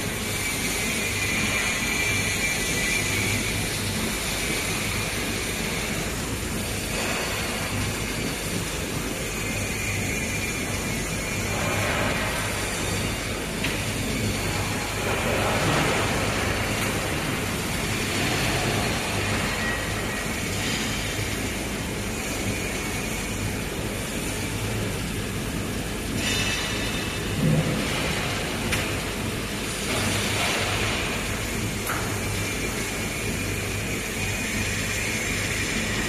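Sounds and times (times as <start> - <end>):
machine hum and rumble: 0.0 - 36.0.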